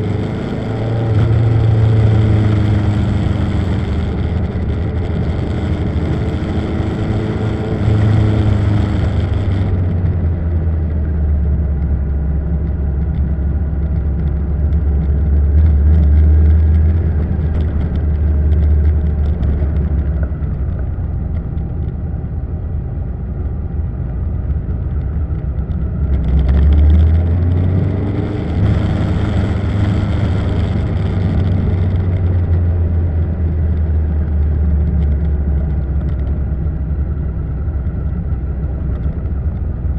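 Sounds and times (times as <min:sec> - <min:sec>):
motorcycle engine revving: 0:00.0 - 0:11.3, 0:25.6 - 0:39.5
wind and road noise: 0:00.0 - 0:39.9.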